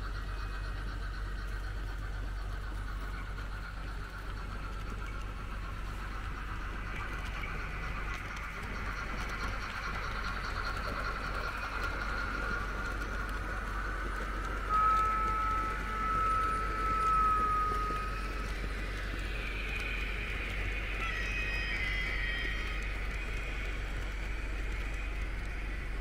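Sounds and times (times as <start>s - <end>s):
model trains whirring on track: 0.0s - 26.0s
steady high tone: 14.6s - 23.1s.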